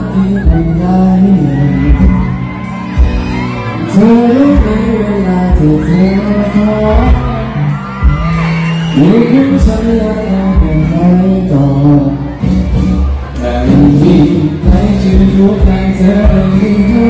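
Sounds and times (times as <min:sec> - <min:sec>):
man singing into microphone: 0:00.0 - 0:02.6, 0:03.7 - 0:08.0, 0:08.8 - 0:12.5, 0:13.3 - 0:17.0
amplified backing music: 0:00.0 - 0:17.0
low drum beat: 0:00.3 - 0:02.4, 0:04.0 - 0:08.5, 0:09.5 - 0:11.1, 0:12.4 - 0:17.0.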